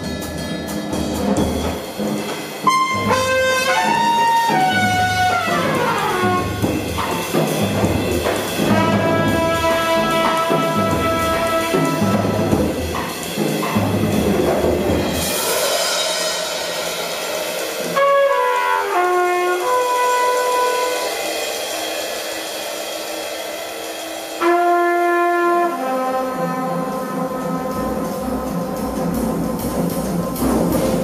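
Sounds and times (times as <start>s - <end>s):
drums playing busily: 0.0s - 31.0s
trumpet: 2.6s - 7.2s, 8.6s - 13.0s, 17.8s - 21.6s, 24.4s - 29.0s
cymbal wash: 15.0s - 18.0s, 20.3s - 25.1s.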